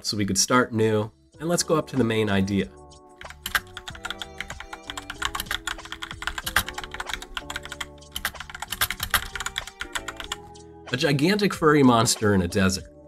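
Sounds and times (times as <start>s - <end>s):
background music with held tones: 0.0s - 13.0s
fast typing on a keyboard: 3.2s - 10.5s.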